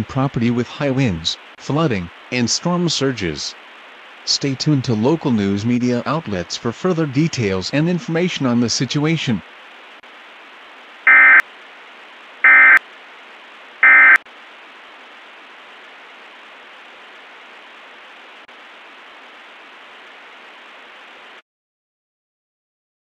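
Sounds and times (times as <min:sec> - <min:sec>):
static hiss: 0:00.0 - 0:21.4
buzzy digital squawks: 0:11.1 - 0:11.4, 0:12.5 - 0:12.8, 0:13.8 - 0:14.2.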